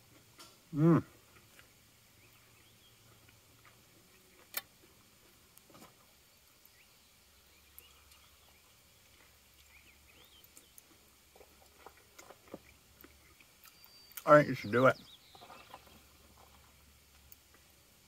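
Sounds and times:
faint high chirps: 6.6 - 8.7, 12.6 - 16.0.

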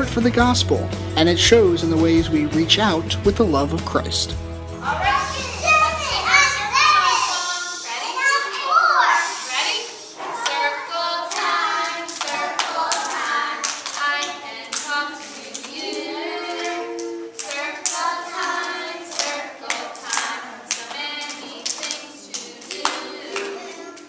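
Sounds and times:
children and adult singing: 4.8 - 24.0
hands clapping: 11.3 - 24.0.

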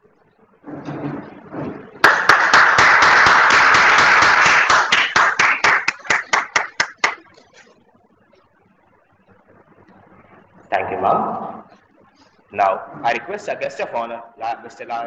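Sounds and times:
audience applauding: 2.0 - 7.4.

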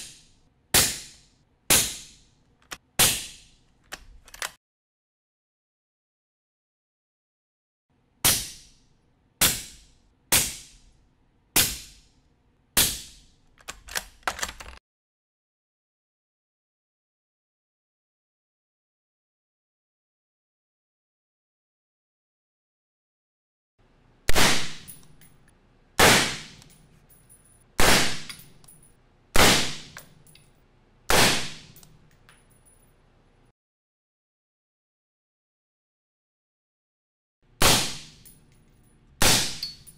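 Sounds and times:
small clicks and knocks: 2.5 - 2.9, 3.7 - 4.6, 13.4 - 14.8, 30.0 - 30.6, 31.7 - 32.9
suppressed gunshots: 24.3 - 24.9.

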